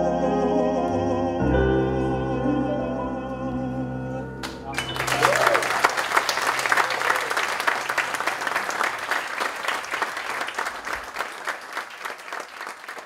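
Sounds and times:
audience applauding: 0:04.4 - 0:13.0.

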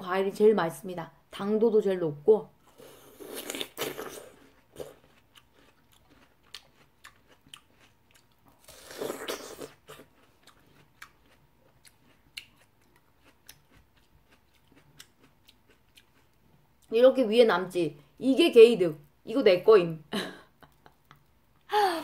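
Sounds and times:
chewing watermelon: 0:03.1 - 0:17.0.

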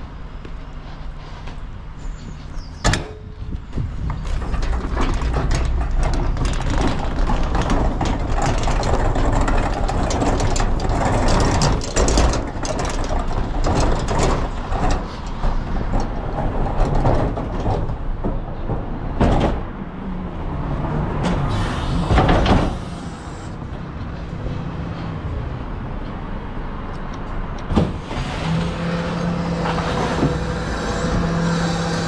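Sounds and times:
low engine rumble: 0:00.0 - 0:32.0
garbage truck mechanical clatter: 0:02.0 - 0:19.8, 0:21.1 - 0:24.1, 0:27.6 - 0:32.0.

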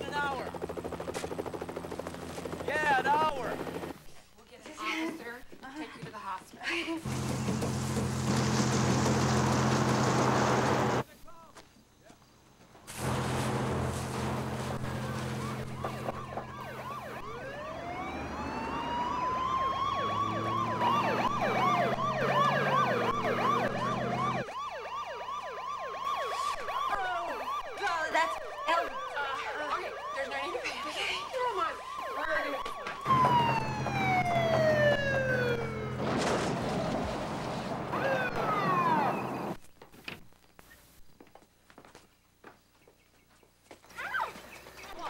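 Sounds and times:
siren wail: 0:14.7 - 0:36.2, 0:37.8 - 0:39.6
siren fast yelp: 0:14.9 - 0:36.0, 0:37.9 - 0:39.6.

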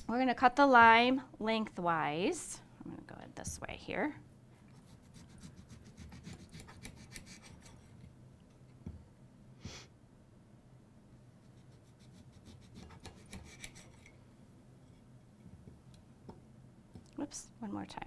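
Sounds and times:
faint low hum: 0:00.0 - 0:18.0
knife sawing through lime: 0:04.8 - 0:08.0, 0:11.5 - 0:14.1.

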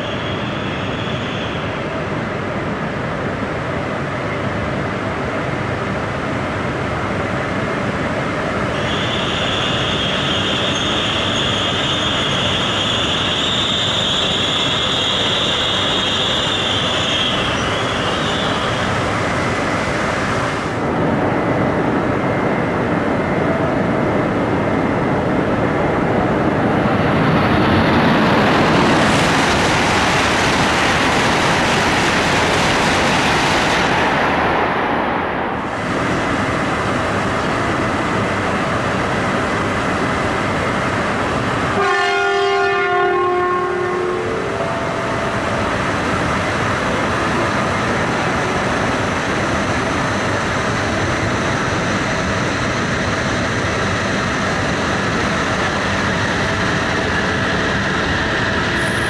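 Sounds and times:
train squealing slowly: 0:00.0 - 0:02.0, 0:08.5 - 0:19.7, 0:44.2 - 0:59.0
high-speed train passing: 0:00.0 - 0:59.0.

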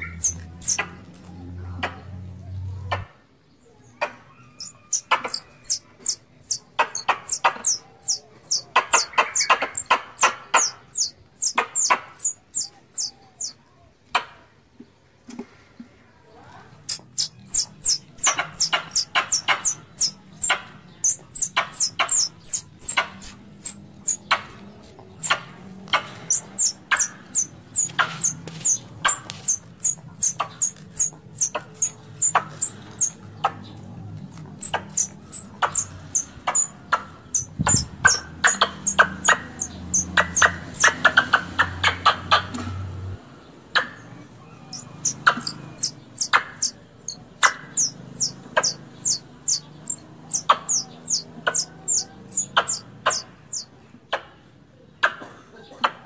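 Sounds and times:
squirrel sharp chirps: 0:00.0 - 0:01.0, 0:04.4 - 0:13.6, 0:16.9 - 0:33.6, 0:34.6 - 0:42.5, 0:44.6 - 0:53.7.

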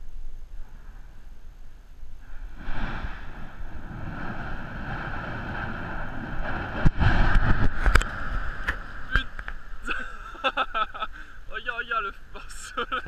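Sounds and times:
explosive blast: 0:02.2 - 0:09.8
volcano rumbling roar: 0:02.2 - 0:10.0
sharp cracks: 0:02.3 - 0:09.9.

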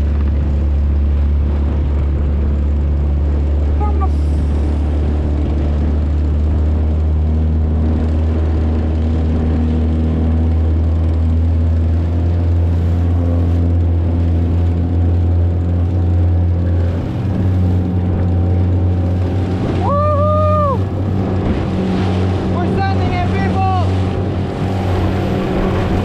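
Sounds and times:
wind noise: 0:00.0 - 0:11.9, 0:12.6 - 0:26.0
outboard motor drone: 0:00.0 - 0:26.0
water splashing: 0:00.0 - 0:26.0.

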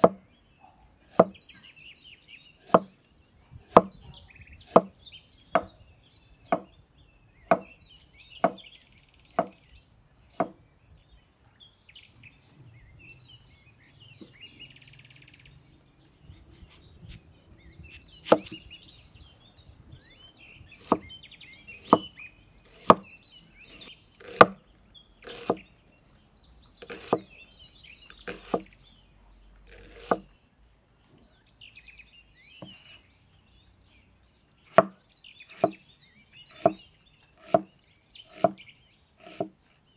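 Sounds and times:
cleaver chopping on wooden board: 0:00.0 - 0:00.2, 0:01.1 - 0:01.4, 0:02.6 - 0:02.9, 0:03.6 - 0:04.0, 0:04.7 - 0:05.0, 0:05.6 - 0:05.8, 0:06.4 - 0:06.7, 0:07.4 - 0:07.8, 0:08.4 - 0:08.6, 0:09.3 - 0:09.6, 0:10.3 - 0:10.6, 0:17.9 - 0:18.6, 0:20.8 - 0:21.1, 0:21.8 - 0:22.1, 0:22.7 - 0:23.1, 0:23.7 - 0:24.6, 0:25.2 - 0:25.6, 0:26.8 - 0:27.3, 0:28.2 - 0:28.7, 0:29.7 - 0:30.2, 0:34.7 - 0:35.8, 0:36.5 - 0:36.8, 0:37.4 - 0:37.7, 0:38.3 - 0:38.6, 0:39.2 - 0:39.6.

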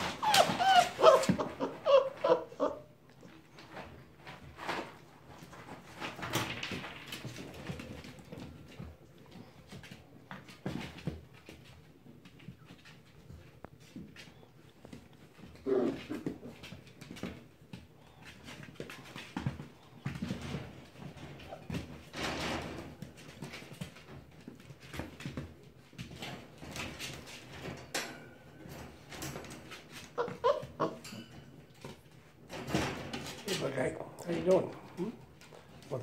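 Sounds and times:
puppy whines: 0:00.0 - 0:03.4, 0:15.6 - 0:16.6, 0:21.4 - 0:21.9, 0:30.0 - 0:31.3
puppies scuffling: 0:00.0 - 0:36.0
rustles: 0:00.0 - 0:36.0.

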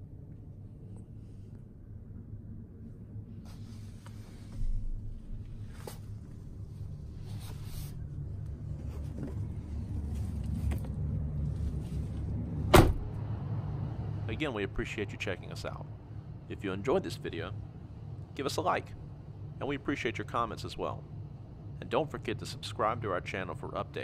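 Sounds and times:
low steady hum: 0:00.0 - 0:24.0
handling rustling and scraping: 0:05.6 - 0:12.5.

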